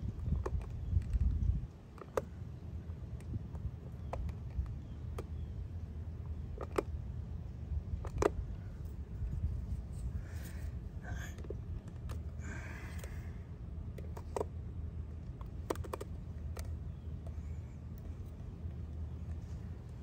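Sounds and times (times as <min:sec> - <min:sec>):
steady low rumble: 0:00.0 - 0:20.0
plastic tool clicking and tapping: 0:15.4 - 0:16.7.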